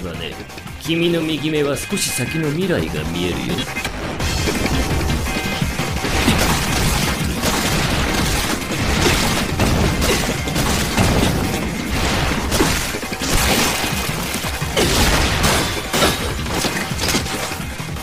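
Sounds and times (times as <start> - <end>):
dramatic background music: 0.0 - 18.0
spattering and crashing impacts: 3.8 - 18.0.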